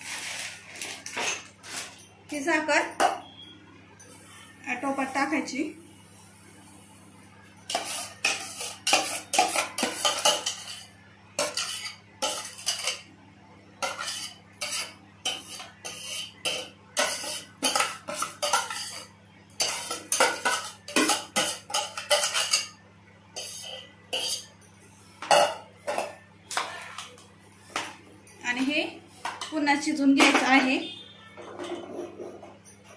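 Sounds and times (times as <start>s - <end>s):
spoon scraping steel pots: 7.7s - 13.1s, 13.8s - 22.8s, 23.4s - 24.6s, 31.3s - 32.7s.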